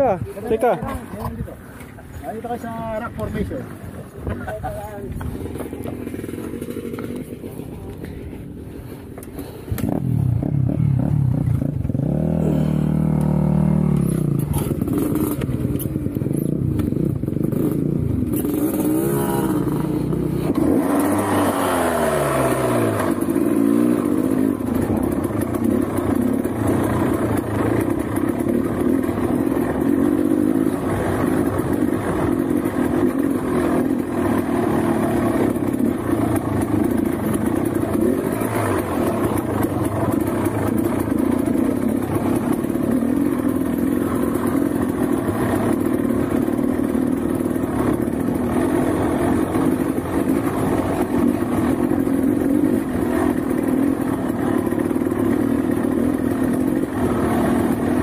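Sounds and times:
motorcycle engine revving: 0:05.2 - 0:08.6, 0:09.4 - 0:58.0.

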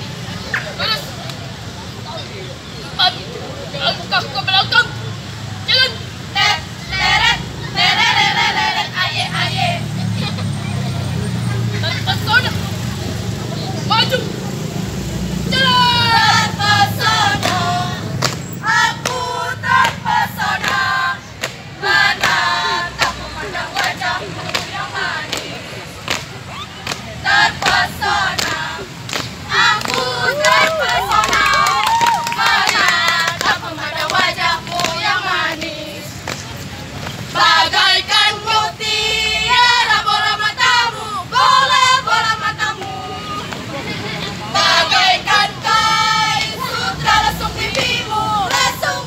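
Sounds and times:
girls chanting in unison: 0:05.7 - 0:10.0, 0:15.5 - 0:25.9, 0:27.1 - 0:36.3, 0:37.2 - 0:49.0.

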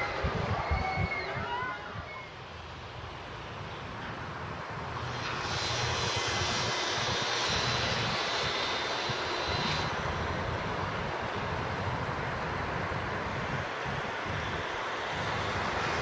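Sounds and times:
thin high whine: 0:05.0 - 0:11.5.

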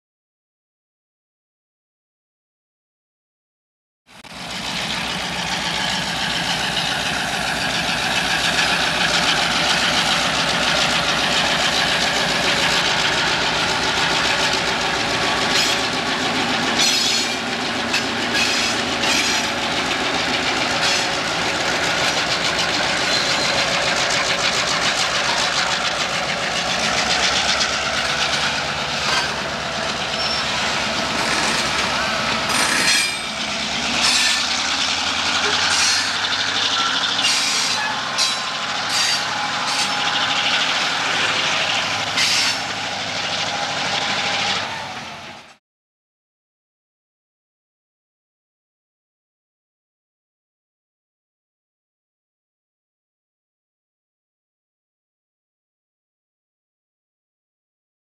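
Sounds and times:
locomotive engine drone: 0:04.2 - 0:45.6
train wheels rumbling: 0:04.3 - 0:45.6
wheels clicking over rail joints: 0:04.3 - 0:45.6.

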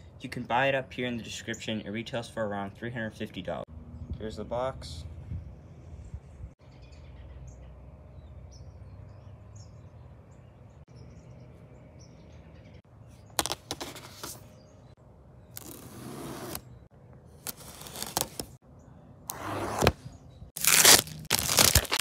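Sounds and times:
birds chirping faintly: 0:00.0 - 0:20.6
plastic shrink wrap crinkling: 0:20.6 - 0:22.0.

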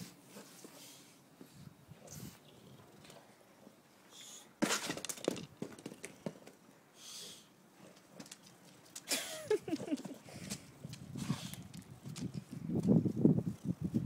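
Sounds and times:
plastic ball clattering on stone: 0:04.6 - 0:06.6.

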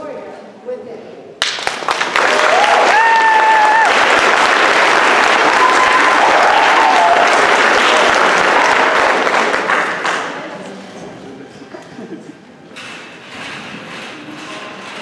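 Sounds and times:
audience applauding: 0:01.4 - 0:10.6
high-pitched cheers: 0:02.2 - 0:04.3, 0:05.2 - 0:08.1.

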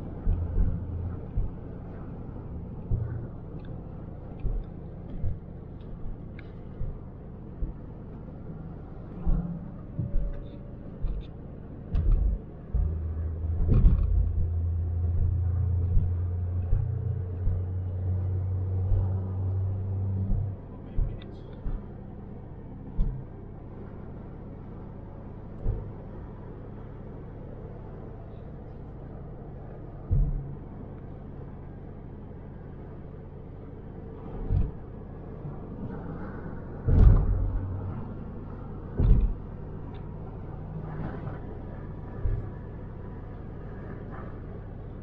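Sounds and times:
car road and engine rumble: 0:00.0 - 0:45.0
low thumps: 0:11.0 - 0:21.9, 0:22.9 - 0:23.3, 0:30.0 - 0:30.6, 0:36.8 - 0:38.0, 0:38.9 - 0:39.6.

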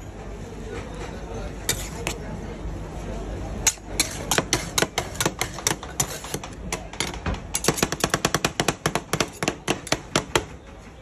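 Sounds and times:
metal scrapers clacking on steel pan: 0:01.7 - 0:02.2, 0:03.6 - 0:10.4.

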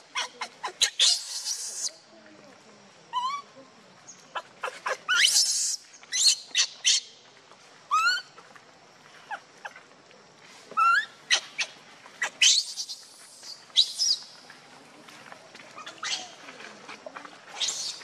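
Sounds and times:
infant monkey squealing: 0:00.1 - 0:01.9, 0:03.1 - 0:03.5, 0:04.6 - 0:07.0, 0:07.9 - 0:08.3, 0:10.8 - 0:13.0, 0:15.8 - 0:16.4, 0:17.6 - 0:18.0.

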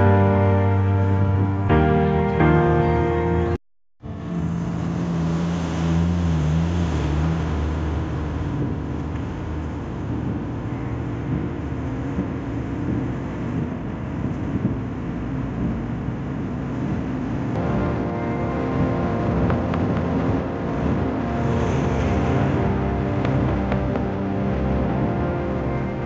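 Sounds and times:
passing diesel truck engine: 0:04.0 - 0:11.1, 0:16.7 - 0:24.8
tyre and engine rumble: 0:04.0 - 0:25.5.

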